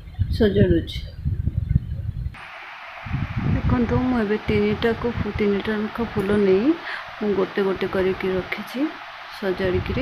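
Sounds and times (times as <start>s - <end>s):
steady hiss: 2.4s - 3.7s.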